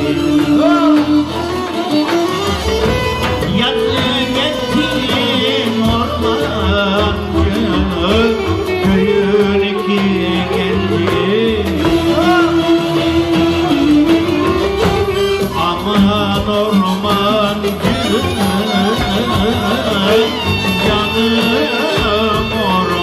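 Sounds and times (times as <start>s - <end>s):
man singing folk song: 0.0s - 2.1s, 3.3s - 23.0s
plucked lutes: 0.0s - 23.0s
violins: 0.0s - 23.0s.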